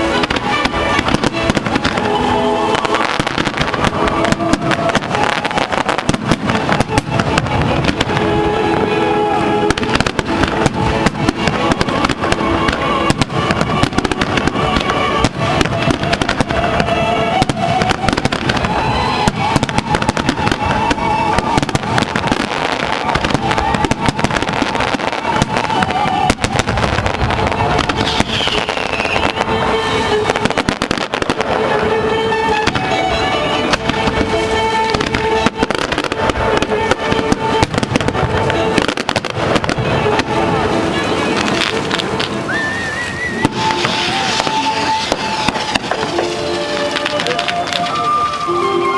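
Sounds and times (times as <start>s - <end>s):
fireworks bursting: 0.0s - 48.9s
music playing: 0.0s - 48.9s.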